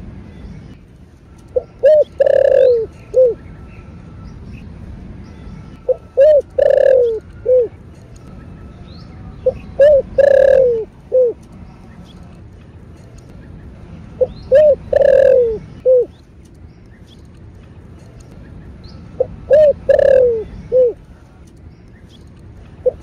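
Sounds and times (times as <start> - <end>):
dove cooing: 1.5 - 3.4, 5.9 - 7.7, 9.4 - 11.4, 14.2 - 16.1, 19.2 - 21.0.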